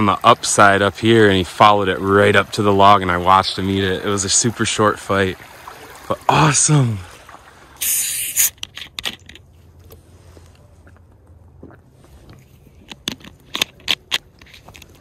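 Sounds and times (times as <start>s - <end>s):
dry grass scraping camera: 7.8s - 9.4s.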